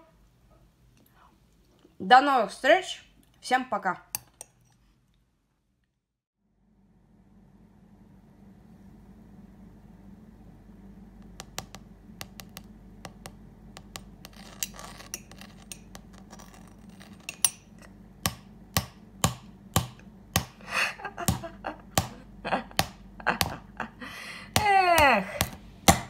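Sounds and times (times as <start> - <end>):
spoon scraping: 4.1 - 5.0, 13.8 - 18.0
teaspoon tapping caramelized sugar: 4.2 - 4.6, 11.2 - 20.5.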